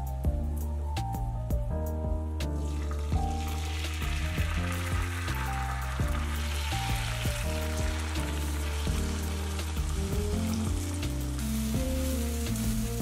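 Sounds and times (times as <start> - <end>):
background music: 0.0 - 13.0
food sizzling in a pan: 2.5 - 13.0.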